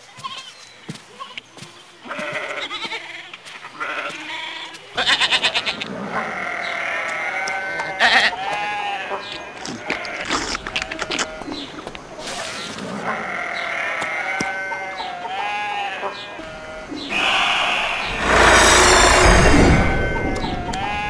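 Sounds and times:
sheep bleating: 0:13.2 - 0:16.8.

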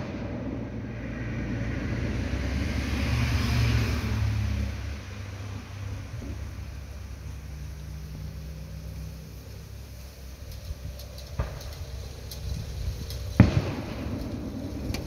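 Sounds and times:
firework bangs: 0:00.0 - 0:05.0, 0:10.6 - 0:15.0
steady low hum: 0:00.0 - 0:15.0.

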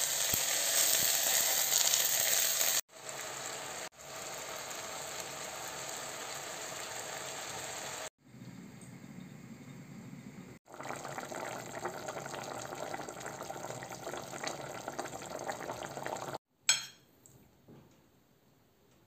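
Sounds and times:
stew bubbling in a pot: 0:10.6 - 0:16.4.

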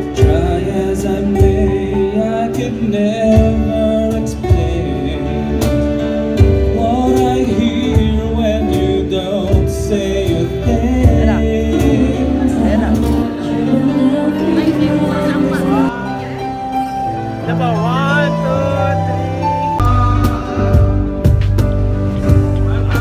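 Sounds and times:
person singing: 0:00.0 - 0:16.6
steady low beat: 0:19.8 - 0:23.0.

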